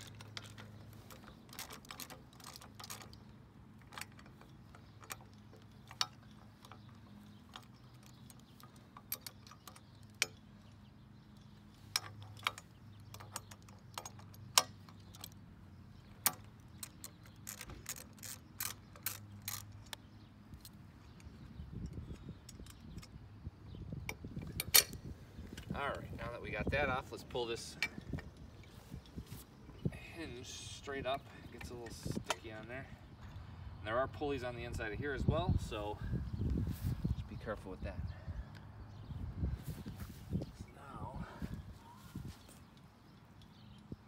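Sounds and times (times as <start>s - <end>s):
ratchet wrench clicking: 16.1s - 20.0s.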